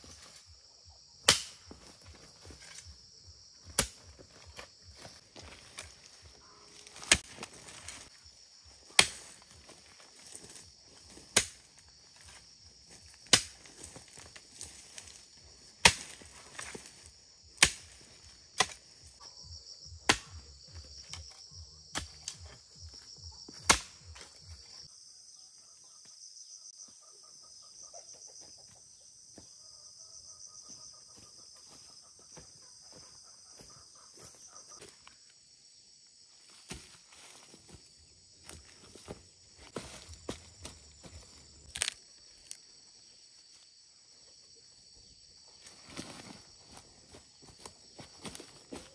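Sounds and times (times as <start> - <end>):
high-pitched insect chorus: 0.0 - 48.9.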